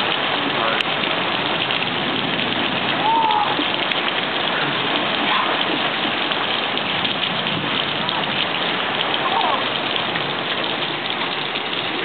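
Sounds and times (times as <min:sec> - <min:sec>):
rain pouring down: 0:00.0 - 0:12.0.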